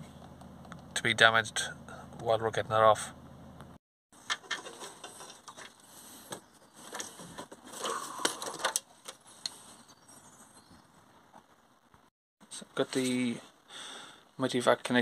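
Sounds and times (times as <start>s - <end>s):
rustling: 4.2s - 12.1s.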